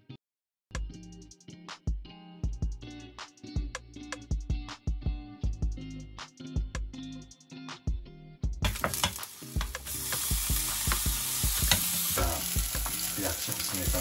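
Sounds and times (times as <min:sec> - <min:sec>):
background music with steady beat: 0:00.7 - 0:14.0
food sizzling in frying pan: 0:08.6 - 0:14.0.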